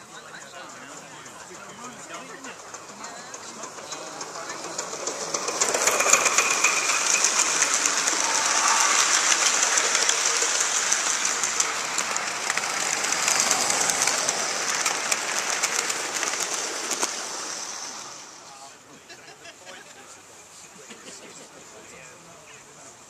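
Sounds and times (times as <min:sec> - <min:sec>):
model train wheels on rails: 0:00.0 - 0:23.0
clicking over rail joints: 0:01.0 - 0:08.6, 0:09.7 - 0:18.1.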